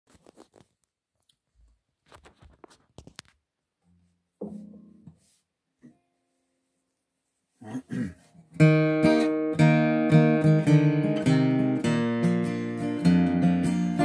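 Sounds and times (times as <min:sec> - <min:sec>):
acoustic guitar chord strummed: 0:08.4 - 0:14.0.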